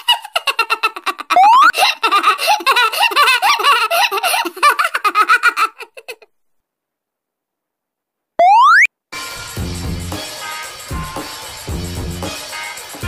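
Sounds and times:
person giggling: 0:00.0 - 0:06.3.

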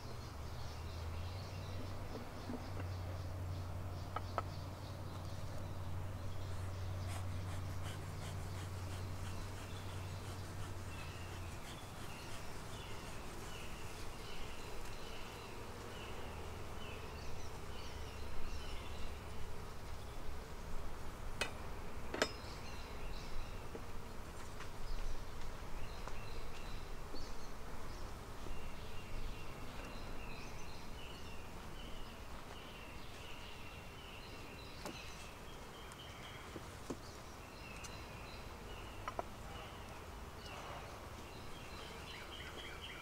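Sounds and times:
honeybees buzzing: 0:01.6 - 0:35.8.

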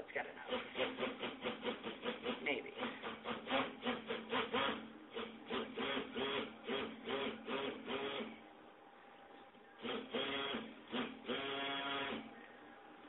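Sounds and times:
stick blender motor whirring: 0:00.5 - 0:08.3, 0:09.8 - 0:12.4.

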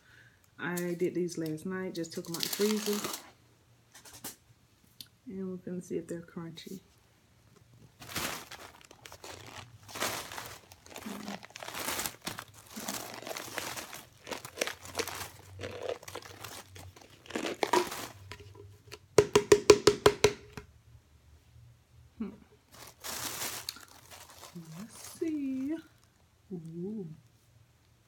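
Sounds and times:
plastic bag crinkling: 0:02.0 - 0:03.3, 0:07.8 - 0:18.8, 0:22.7 - 0:26.2
powder shaken out: 0:08.0 - 0:18.4.

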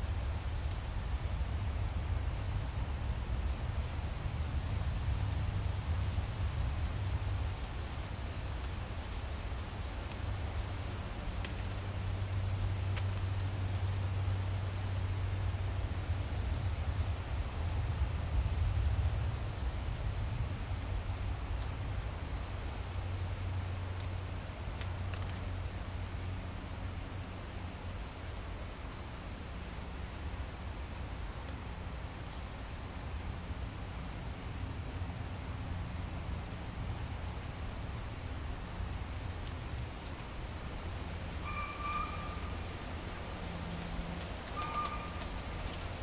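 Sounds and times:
faint high chirps: 0:41.4 - 0:42.6, 0:44.5 - 0:45.6.

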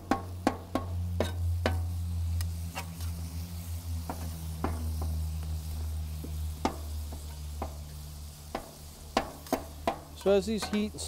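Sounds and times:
light sizzling: 0:00.0 - 0:11.0
steady low hum: 0:00.0 - 0:11.0
metal spatula scraping griddle: 0:08.6 - 0:11.0.

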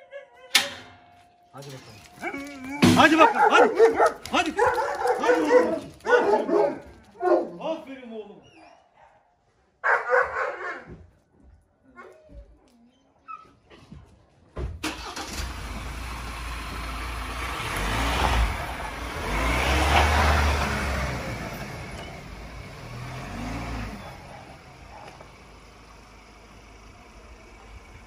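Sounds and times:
car engine accelerating: 0:14.8 - 0:28.0.

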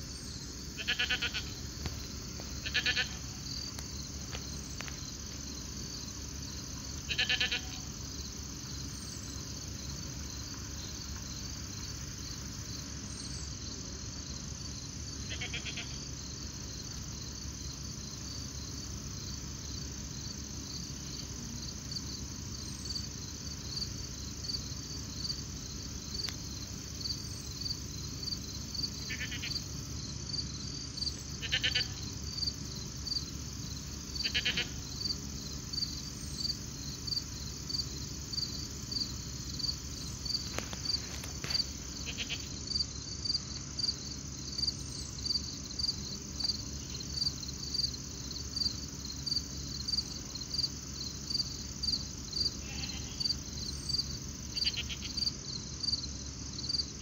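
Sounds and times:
crickets chirping: 0:00.0 - 0:57.0
trilled animal call: 0:00.8 - 0:01.6, 0:02.6 - 0:03.4, 0:07.1 - 0:07.8, 0:29.0 - 0:29.6, 0:31.4 - 0:32.0, 0:34.2 - 0:34.8, 0:42.0 - 0:42.5, 0:52.6 - 0:53.2, 0:54.6 - 0:55.2.

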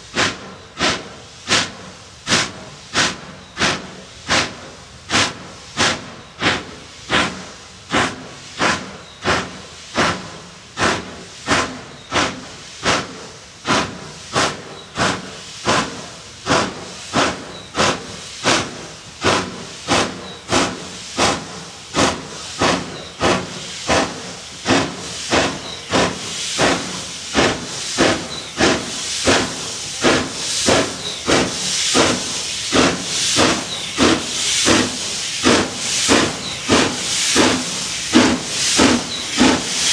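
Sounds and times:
steam locomotive chuffing: 0:00.0 - 0:39.9.

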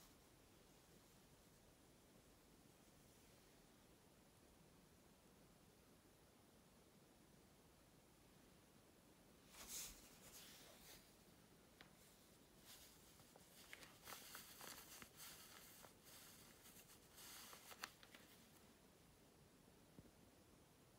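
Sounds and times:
plastic skirt rustling and crinkling: 0:11.9 - 0:18.6.

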